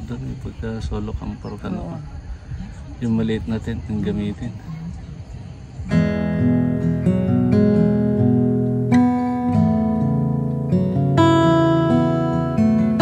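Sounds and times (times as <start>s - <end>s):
acoustic guitar chords: 5.8s - 13.0s.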